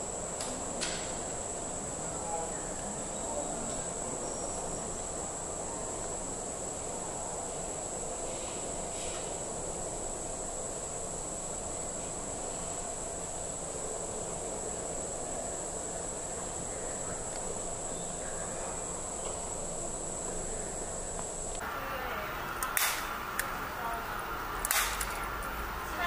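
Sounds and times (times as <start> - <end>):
hum of pedestrian street: 0.0 - 26.0
short clicks: 21.6 - 25.7.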